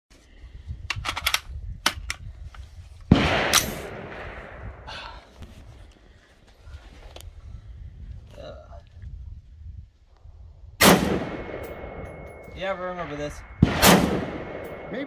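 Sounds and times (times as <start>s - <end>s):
loud gunshot: 3.1s - 4.8s, 10.8s - 15.0s
rifle metallic clicks: 3.5s - 3.9s.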